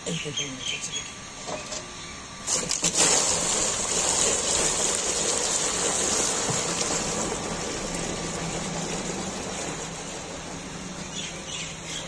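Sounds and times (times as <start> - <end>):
milk pouring and splashing: 2.4 - 11.4.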